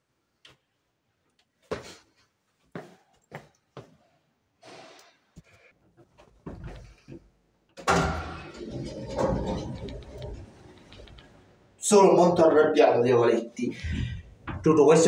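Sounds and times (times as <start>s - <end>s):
knocks on metal shelving: 7.8s - 9.6s.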